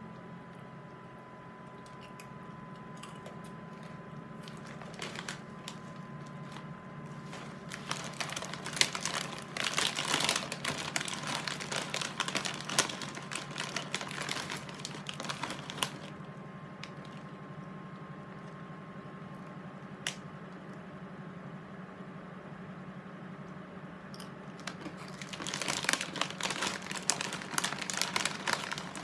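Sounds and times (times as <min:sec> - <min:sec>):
snack bag crinkling: 0:03.0 - 0:16.2, 0:16.8 - 0:17.3, 0:24.6 - 0:29.0.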